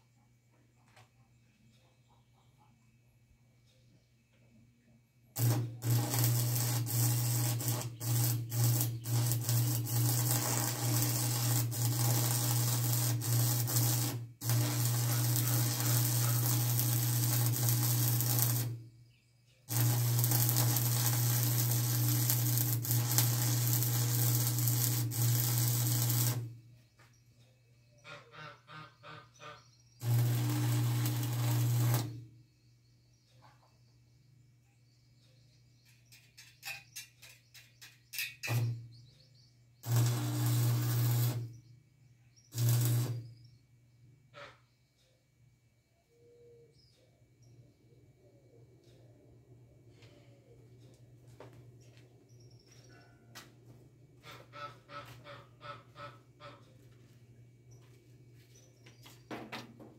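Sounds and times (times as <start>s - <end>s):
arc welding buzz and crackle: 5.4s - 18.8s, 19.7s - 26.6s, 30.0s - 32.3s, 38.4s - 38.8s, 39.8s - 41.6s, 42.5s - 43.3s.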